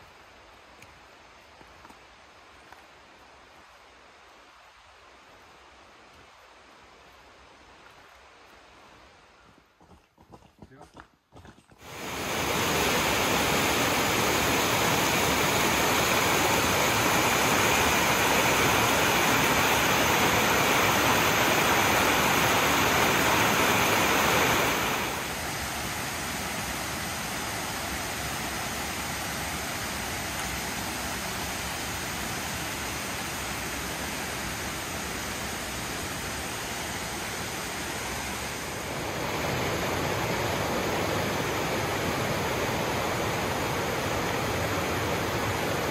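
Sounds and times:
rushing water roar: 11.8 - 45.9.

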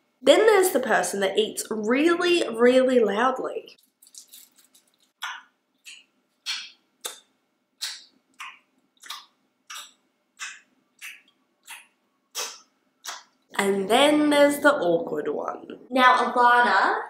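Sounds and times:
person chewing loudly: 4.1 - 13.3.

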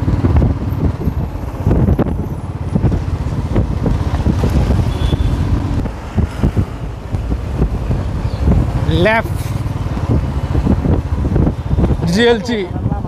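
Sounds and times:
motorcycle engine running: 0.0 - 12.0
wind buffeting microphone: 0.0 - 13.0.

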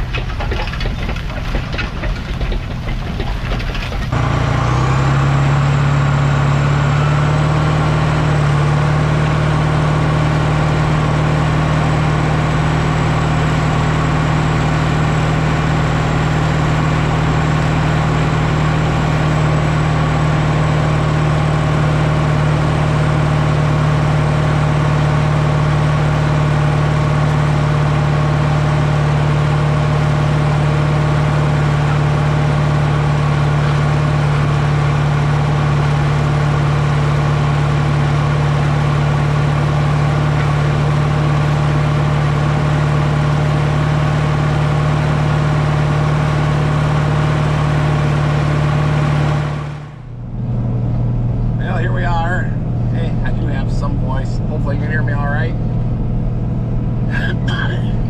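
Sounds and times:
diesel tractor engine under load: 0.0 - 58.0.

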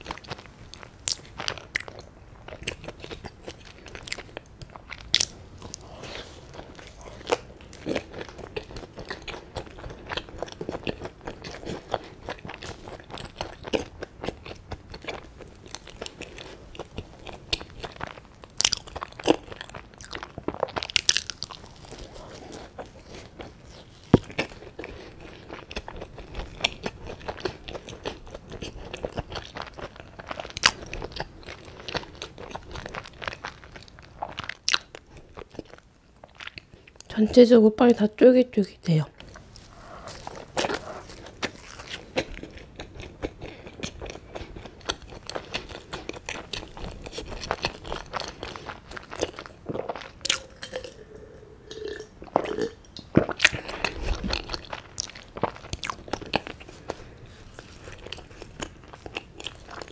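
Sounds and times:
chewing soft bread: 0.0 - 37.1, 39.1 - 59.9
small crunches: 39.2 - 50.9.

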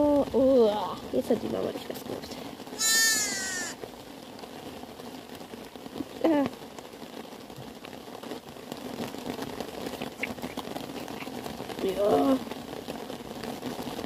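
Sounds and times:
lamb call: 2.8 - 3.8.

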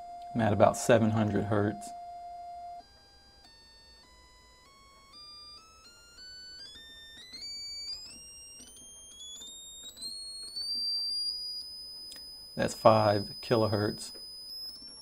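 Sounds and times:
sine test tone stepping up: 0.0 - 15.0.

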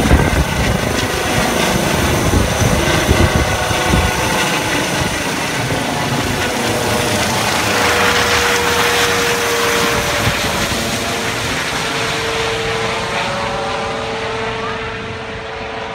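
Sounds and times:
helicopter flying overhead: 0.0 - 15.9.

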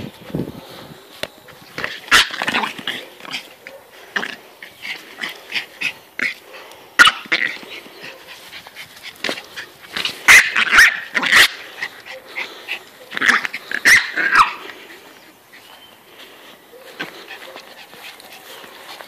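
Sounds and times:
dog barking and growling: 1.8 - 8.6, 9.2 - 15.0.

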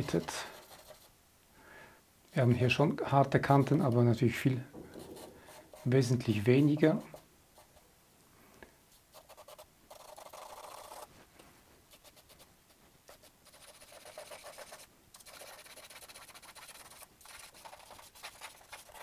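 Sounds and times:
charcoal scratching on paper: 0.0 - 1.1, 9.1 - 11.1, 11.9 - 12.5, 13.1 - 19.0.

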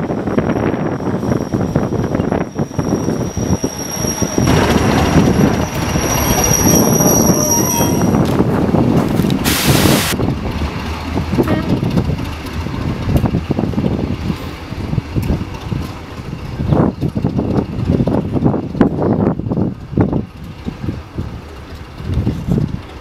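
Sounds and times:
train wheels squealing on rails: 0.1 - 8.3
short loud hiss: 9.4 - 10.2.

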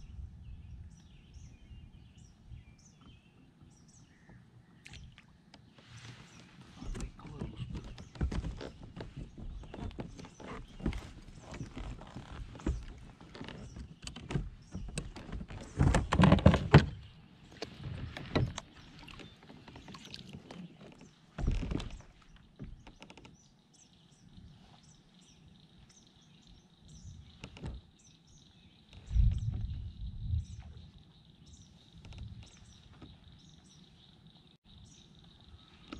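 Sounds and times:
gear knocking and rattling in kayak: 6.4 - 23.6, 26.9 - 28.1, 28.8 - 34.0.

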